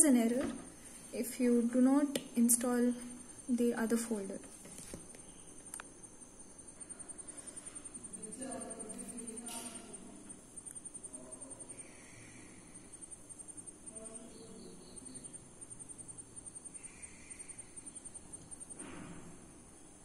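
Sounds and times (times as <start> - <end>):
insect chirping: 0.0 - 20.0
soft rustle: 4.4 - 5.3.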